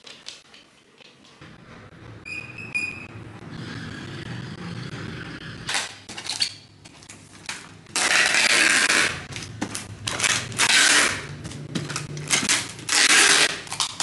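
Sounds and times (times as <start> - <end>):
packing tape ripping off roll: 7.9 - 14.0.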